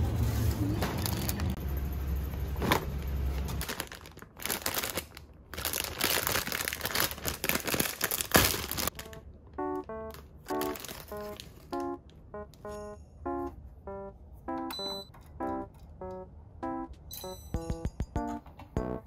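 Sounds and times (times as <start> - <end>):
plastic bag crinkling: 2.9 - 9.2, 10.1 - 11.9
light keyboard melody: 8.9 - 19.0.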